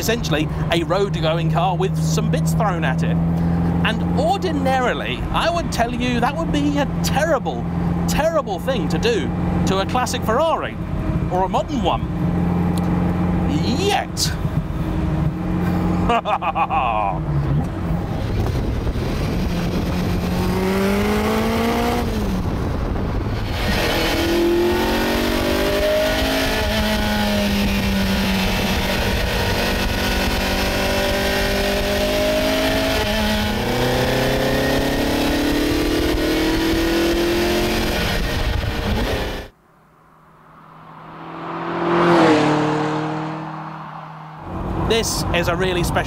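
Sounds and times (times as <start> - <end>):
vee eight engine accelerating hard: 0.0 - 39.5, 40.3 - 46.0.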